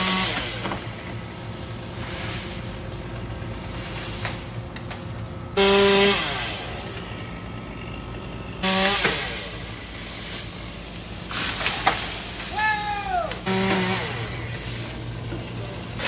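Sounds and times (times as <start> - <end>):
chainsaw idling and revving: 0.0 - 3.6, 5.4 - 11.2, 13.3 - 16.0.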